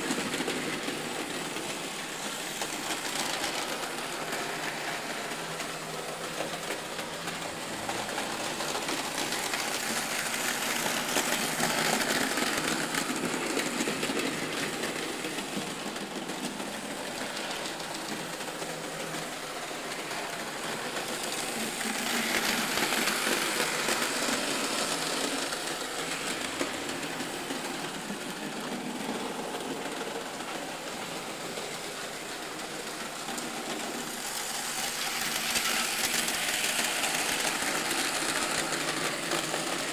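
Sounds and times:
model train motors whirring: 0:00.0 - 0:39.9.

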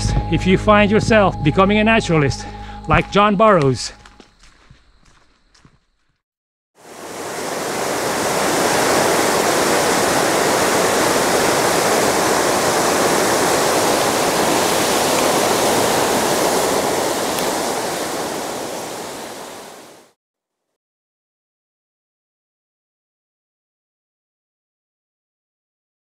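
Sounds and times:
waterfall rushing water: 0:06.8 - 0:20.2.

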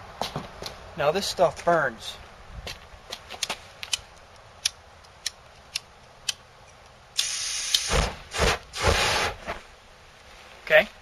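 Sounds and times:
aerosol spray hissing: 0:07.2 - 0:09.3.

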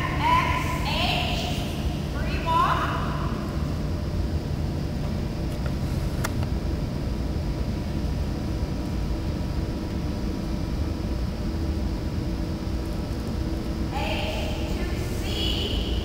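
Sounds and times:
faint even hum: 0:00.0 - 0:16.0.

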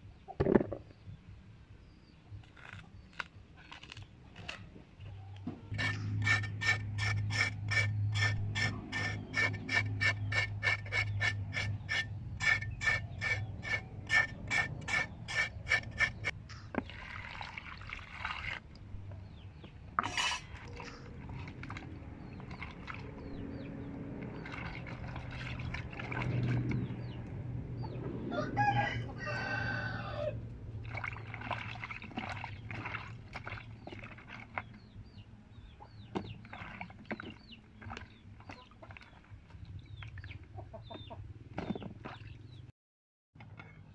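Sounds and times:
hands splashing vegetables in water: 0:24.0 - 0:27.0, 0:30.8 - 0:34.7.

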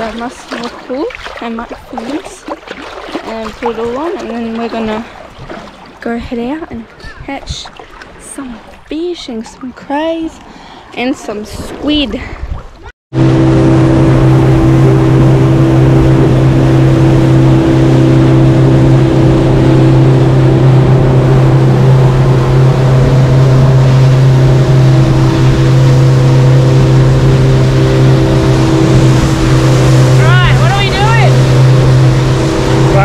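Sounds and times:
motorboat engine hum: 0:00.0 - 0:33.0
water rushing: 0:00.0 - 0:33.0
wind noise: 0:11.4 - 0:33.0.

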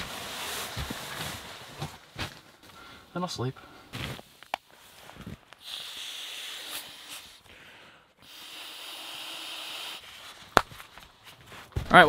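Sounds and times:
breaths blown into a valve: 0:05.6 - 0:07.4, 0:08.2 - 0:10.1.

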